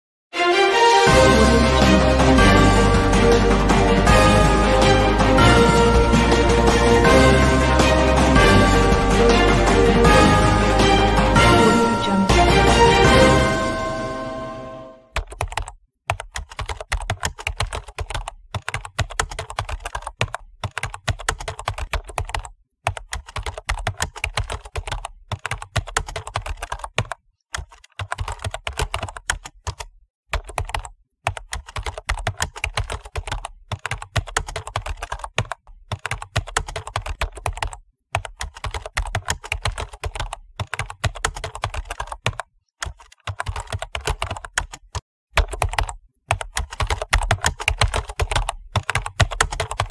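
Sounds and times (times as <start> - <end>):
keyboard key clicks: 15.2 - 49.9.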